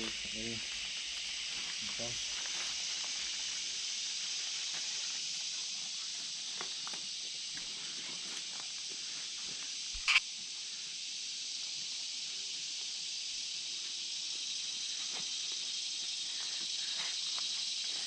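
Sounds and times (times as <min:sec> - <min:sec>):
insect chorus hissing: 0:00.0 - 0:18.0
sharp click: 0:10.0 - 0:10.2.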